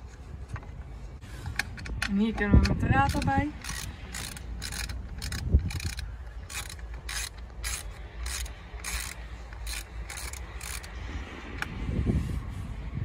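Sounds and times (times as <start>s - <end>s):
steady low rumble: 0.0s - 13.0s
socket ratchet clicking: 1.5s - 11.0s.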